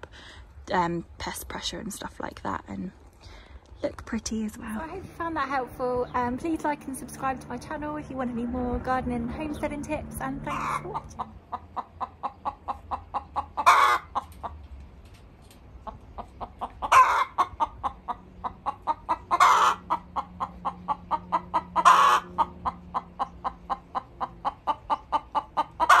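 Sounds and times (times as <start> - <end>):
hen clucking: 4.6 - 14.6, 15.8 - 26.0
hen squawking: 10.5 - 14.2, 16.8 - 22.8.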